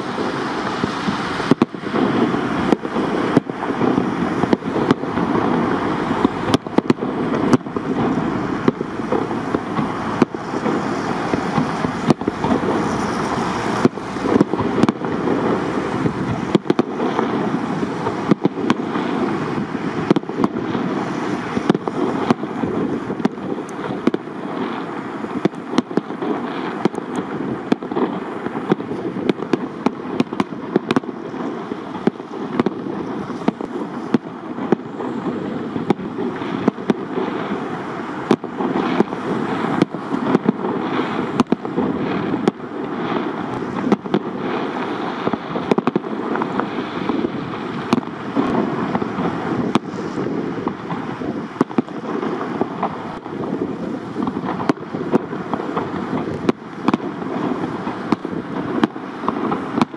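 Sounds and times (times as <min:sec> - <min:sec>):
fireworks bursting with sharp bangs: 0:00.0 - 0:59.9
steady rushing noise: 0:00.0 - 0:59.9.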